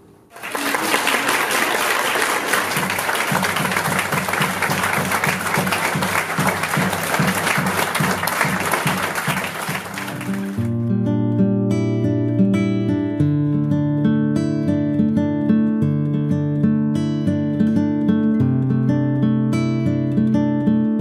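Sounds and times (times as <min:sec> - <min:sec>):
audience applauding: 0:00.3 - 0:10.7
acoustic guitar strumming: 0:02.8 - 0:21.0.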